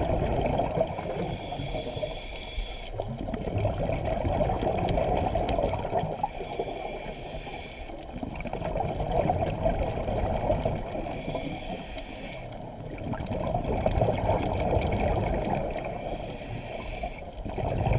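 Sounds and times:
muffled underwater bubbling: 0:00.0 - 0:17.9
regulator breathing: 0:01.2 - 0:03.0, 0:06.3 - 0:08.1, 0:11.0 - 0:12.7, 0:15.8 - 0:17.4.

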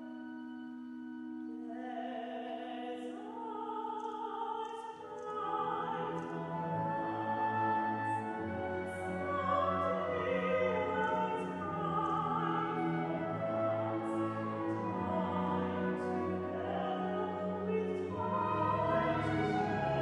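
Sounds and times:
woman singing long notes: 0:01.6 - 0:20.0
orchestra with strings: 0:05.0 - 0:20.0.

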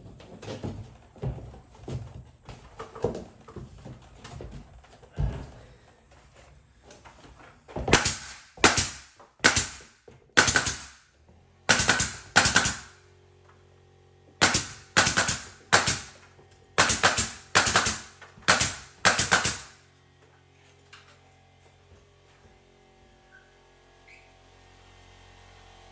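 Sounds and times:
nail gun shots: 0:07.9 - 0:11.1, 0:11.7 - 0:13.0, 0:14.4 - 0:16.2, 0:16.8 - 0:19.8.

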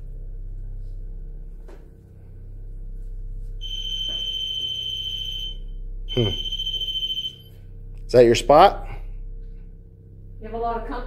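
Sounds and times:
low hum: 0:00.0 - 0:11.0
high electronic alarm tone: 0:03.6 - 0:07.6.

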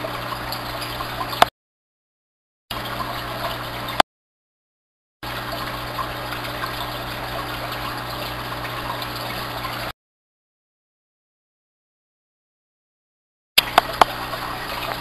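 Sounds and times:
aquarium water bubbling: 0:00.0 - 0:01.5, 0:02.7 - 0:04.0, 0:05.2 - 0:10.0, 0:13.6 - 0:15.0
steady pump hum: 0:00.0 - 0:01.5, 0:02.7 - 0:04.0, 0:05.2 - 0:09.9, 0:13.6 - 0:15.0
sharp click: 0:13.6 - 0:14.2.

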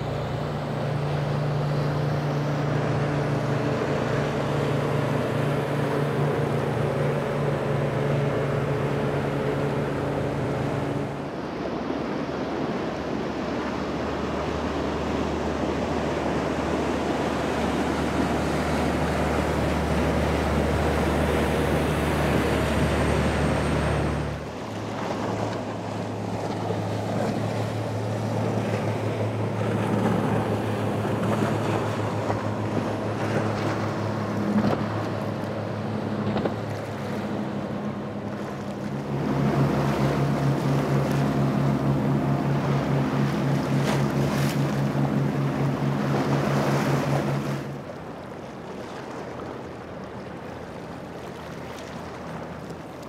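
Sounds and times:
outboard engine drone: 0:00.0 - 0:53.0
rushing water and spray: 0:00.0 - 0:53.0.

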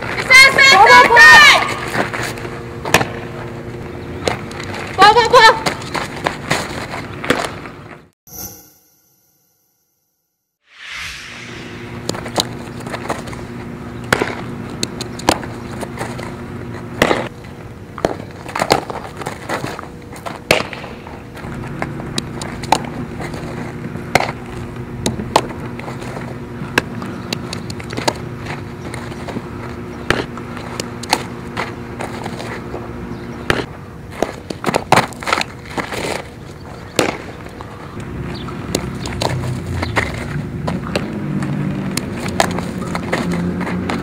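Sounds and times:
steady low hum: 0:10.8 - 0:42.8.

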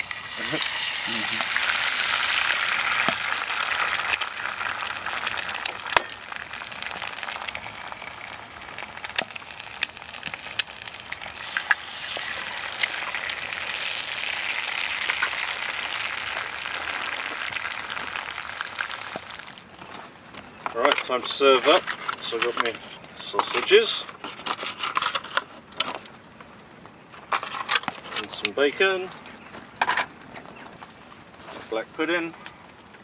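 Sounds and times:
food sizzling in pan: 0:00.0 - 0:19.8.

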